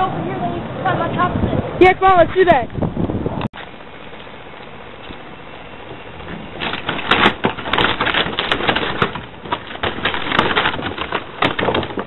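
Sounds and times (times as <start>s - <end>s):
garbage cart rolling over concrete: 6.2s - 12.0s.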